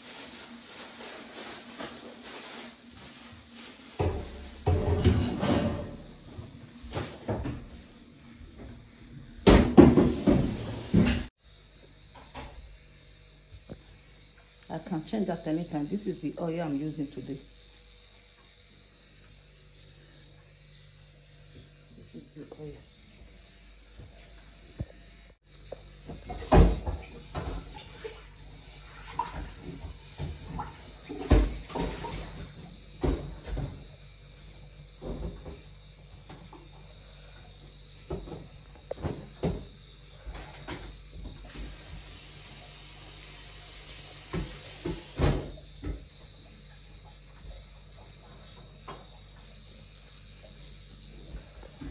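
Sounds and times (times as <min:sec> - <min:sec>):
pans and dishes clattering: 0:04.7 - 0:06.0.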